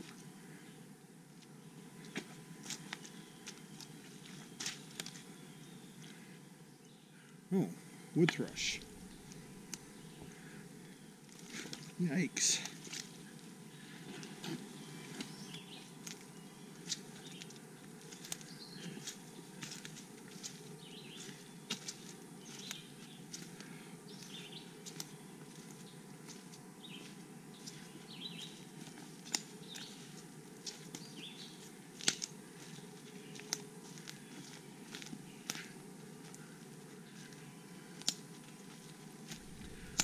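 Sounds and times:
twigs snapping underfoot: 8.8s - 10.0s, 16.0s - 20.6s, 21.2s - 26.4s, 28.8s - 36.6s, 37.2s - 40.0s
footsteps crunching through leaves: 14.2s - 37.9s, 38.7s - 40.0s.

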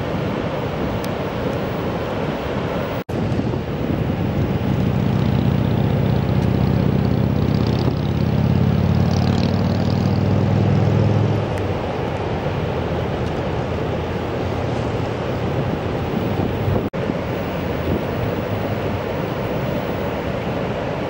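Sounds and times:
surf: 0.0s - 21.0s
wind on microphone: 0.0s - 21.0s
engine humming: 3.4s - 16.9s.

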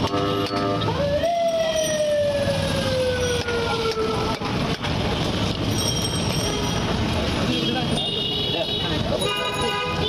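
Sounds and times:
market din: 0.0s - 10.0s
siren winding down: 0.8s - 4.4s.

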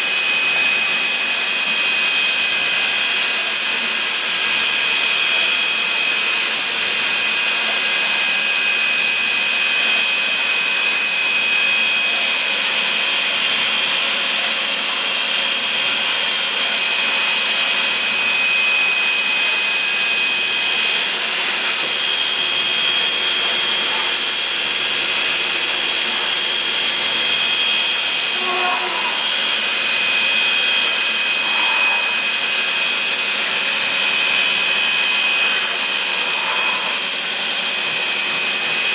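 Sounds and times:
high-pitched mechanical whine: 0.0s - 38.9s
hiss: 16.1s - 38.9s.

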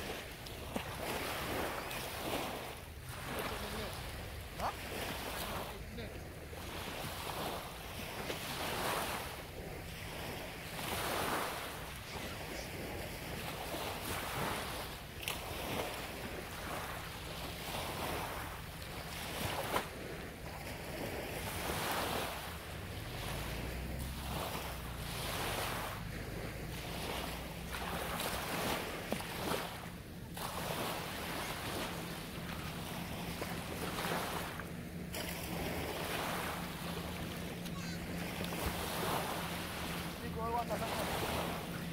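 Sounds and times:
small waves breaking on beach: 0.0s - 41.9s.

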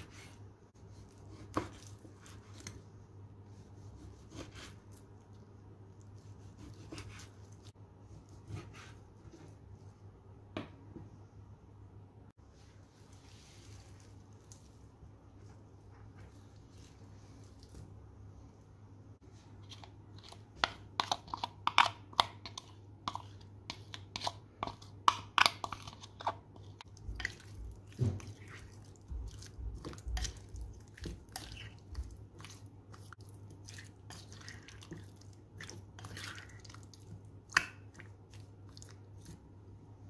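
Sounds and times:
squelching marinated meat: 23.1s - 39.6s.

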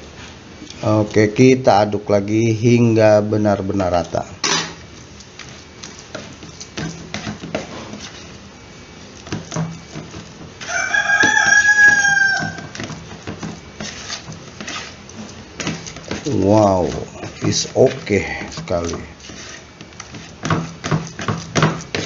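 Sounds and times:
plastic spoon scraping plastic bowl: 3.9s - 8.4s, 9.1s - 22.0s.

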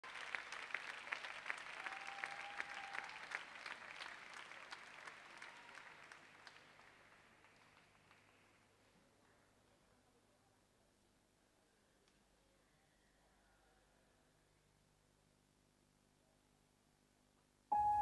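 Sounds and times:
audience applause: 0.0s - 8.6s.

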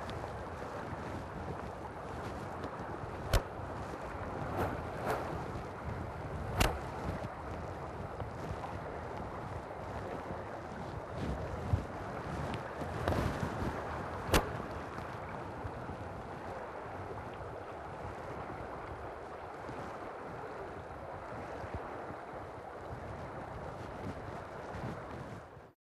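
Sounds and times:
sharp click: 6.6s - 6.8s, 14.3s - 14.5s.

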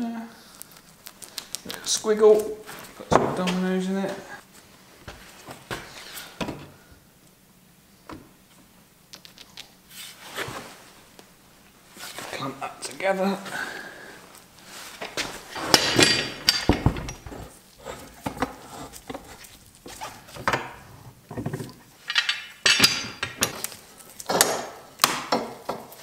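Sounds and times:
steel clamps clanking: 15.5s - 17.5s, 20.4s - 23.7s.

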